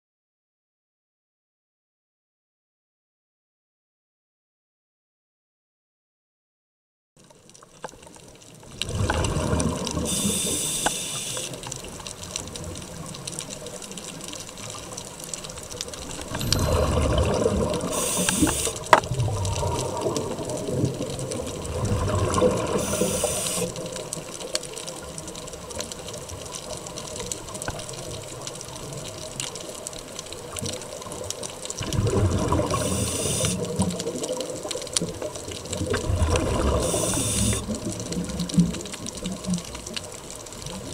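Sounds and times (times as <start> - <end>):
underwater wash: 7.2 - 40.9
exhaled bubbles rushing: 8.7 - 13.2, 15.8 - 24.1, 31.8 - 40.0
regulator hiss: 10.0 - 11.7, 17.9 - 19.0, 22.7 - 23.8, 32.7 - 33.8, 36.7 - 37.7.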